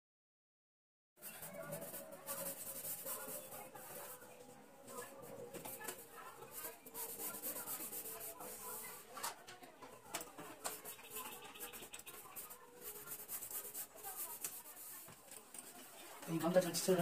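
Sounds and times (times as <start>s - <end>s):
cloth rubbing on fan: 1.2s - 9.1s.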